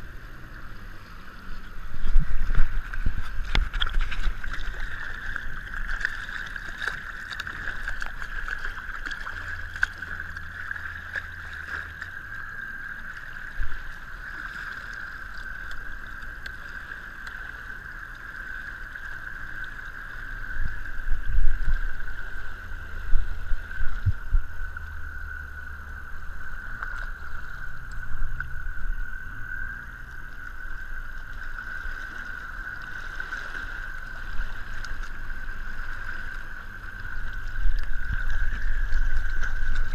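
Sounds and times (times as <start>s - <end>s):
boat engine whine: 0.0s - 39.9s
water splashing along hull: 0.0s - 39.9s.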